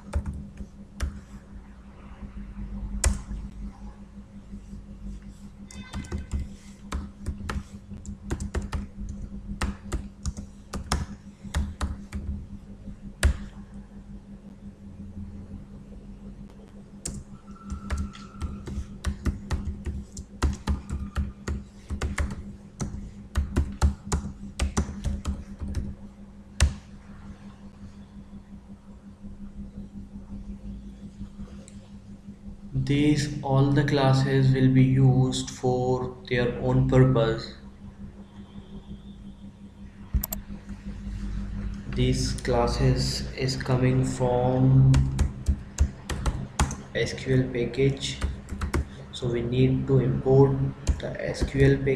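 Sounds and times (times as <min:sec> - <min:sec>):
keyboard typing: 0:00.0 - 0:01.3, 0:05.7 - 0:12.4, 0:17.0 - 0:26.0, 0:40.2 - 0:40.4, 0:44.9 - 0:46.9, 0:47.9 - 0:48.9, 0:50.8 - 0:51.8
low electrical hum: 0:00.0 - 0:51.9.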